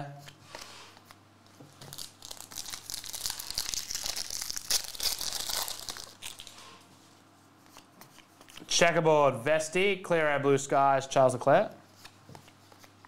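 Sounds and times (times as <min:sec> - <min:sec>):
foil wrapper tearing and crinkling: 0:01.8 - 0:06.6.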